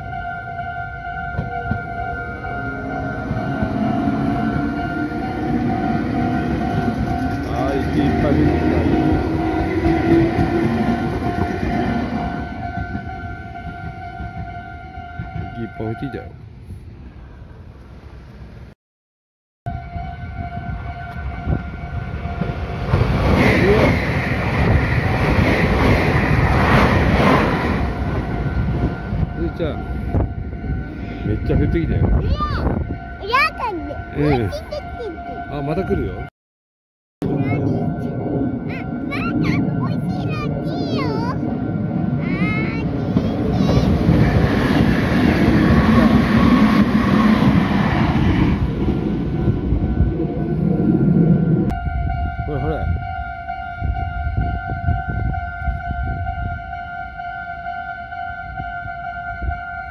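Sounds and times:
electric train rumbling past: 0:00.0 - 0:18.8, 0:19.7 - 0:36.3, 0:37.2 - 0:59.9
level crossing warning bell: 0:00.1 - 0:10.6, 0:33.0 - 0:36.3.

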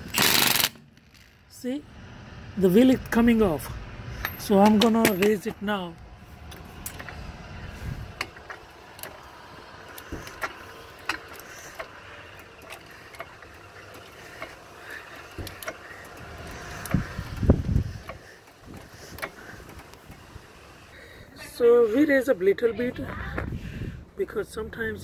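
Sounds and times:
light clicks and creaks: 0:04.1 - 0:21.0
hydraulic floor jack pumping: 0:07.8 - 0:20.5.

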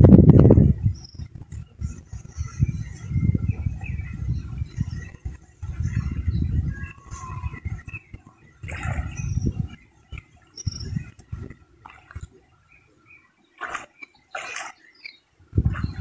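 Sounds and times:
fish splashing in water: 0:06.9 - 0:12.8, 0:13.5 - 0:16.0.

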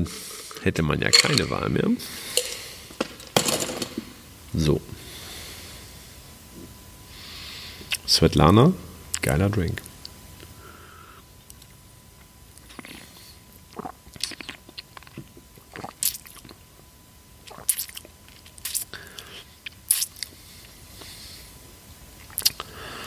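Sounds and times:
person sipping: 0:02.1 - 0:03.0, 0:12.6 - 0:16.6, 0:22.2 - 0:23.0.

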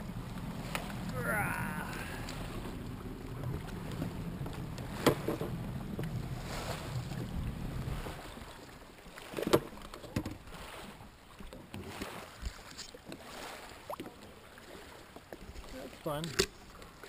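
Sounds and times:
jet ski idling: 0:00.0 - 0:08.6.

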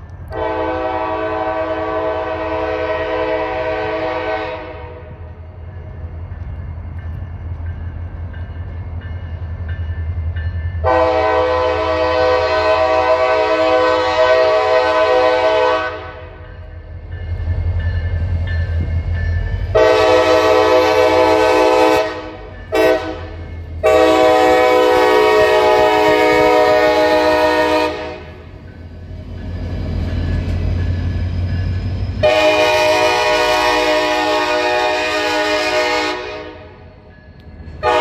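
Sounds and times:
locomotive air horn blasts: 0:00.3 - 0:05.3, 0:10.8 - 0:16.4, 0:19.7 - 0:28.5, 0:32.2 - 0:36.8, 0:37.8 - 0:38.0.

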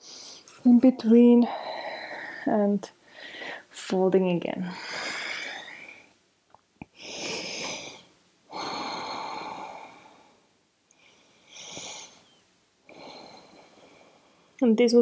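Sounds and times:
person breathing deeply: 0:01.4 - 0:03.7, 0:04.7 - 0:06.2, 0:06.9 - 0:12.3.

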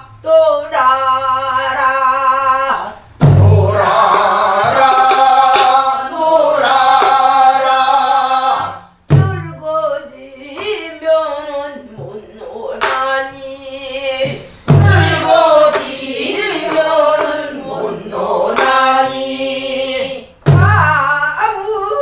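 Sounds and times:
several voices singing together: 0:00.7 - 0:21.0
barrel drum strikes: 0:03.2 - 0:05.9, 0:08.5 - 0:09.6, 0:14.2 - 0:16.0, 0:20.4 - 0:20.9
woman singing folk song: 0:09.2 - 0:15.9.

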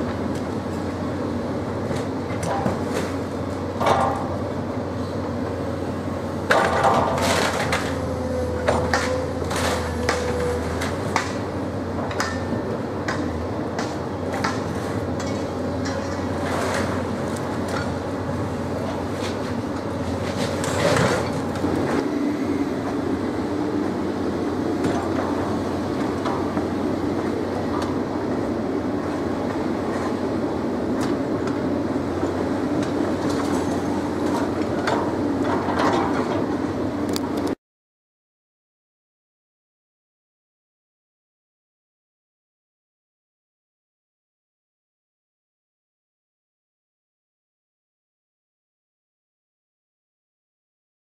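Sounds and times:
engine-like hum: 0:00.0 - 0:37.6
heavy mechanical rumble: 0:00.0 - 0:37.6.

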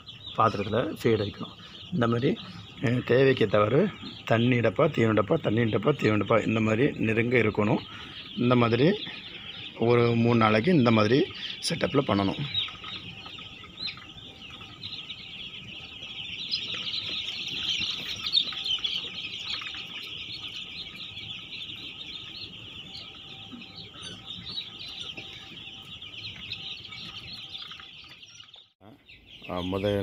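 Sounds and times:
chicks peeping: 0:00.0 - 0:30.0.

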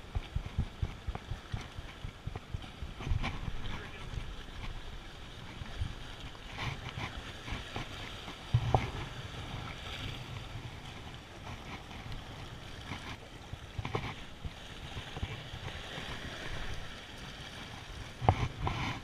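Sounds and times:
waves washing against rocks: 0:00.0 - 0:19.0
wind buffeting microphone: 0:00.0 - 0:19.0.

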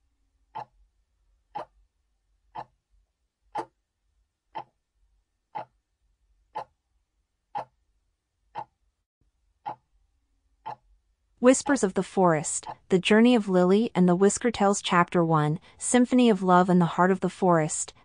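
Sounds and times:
clock ticking: 0:00.5 - 0:00.8, 0:01.5 - 0:01.8, 0:02.5 - 0:02.8, 0:03.5 - 0:03.8, 0:04.5 - 0:04.8, 0:05.5 - 0:05.8, 0:06.5 - 0:06.8, 0:07.5 - 0:07.8, 0:08.5 - 0:08.8, 0:10.6 - 0:10.9.

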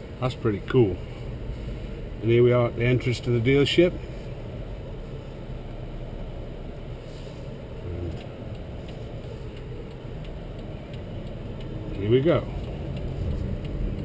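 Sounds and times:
car engine and tyres rumbling: 0:00.0 - 0:14.0
faint light ticks: 0:08.1 - 0:14.0.

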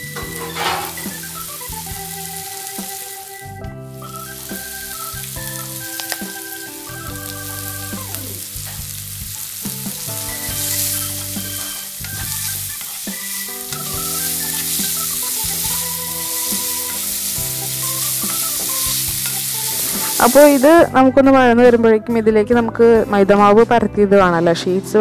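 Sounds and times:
vegetables sizzling in oil: 0:00.0 - 0:21.1
background music: 0:00.0 - 0:25.0
wooden spatula scraping a pan: 0:00.2 - 0:01.3.

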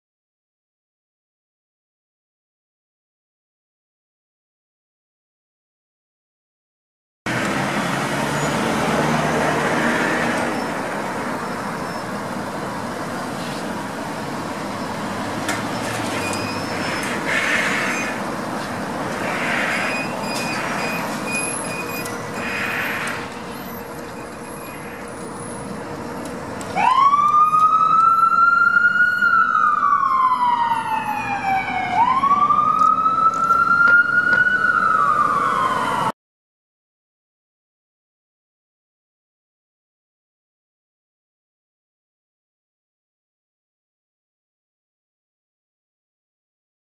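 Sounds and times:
street noise: 0:07.3 - 0:36.1
vehicle engine: 0:07.3 - 0:36.1
electronic siren wailing: 0:19.1 - 0:25.4, 0:26.8 - 0:36.1.

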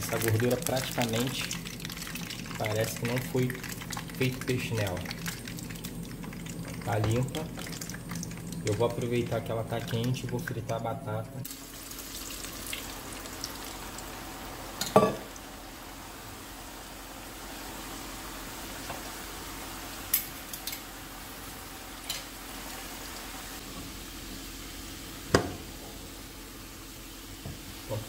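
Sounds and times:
potatoes sizzling in hot oil: 0:00.0 - 0:10.3, 0:11.4 - 0:28.0
dishes knocking and clinking: 0:14.8 - 0:15.3.

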